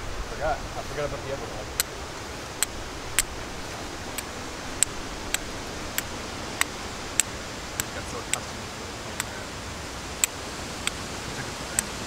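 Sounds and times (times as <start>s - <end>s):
steady hiss: 0.0s - 12.0s
fire striker clicking on flint: 4.1s - 8.4s.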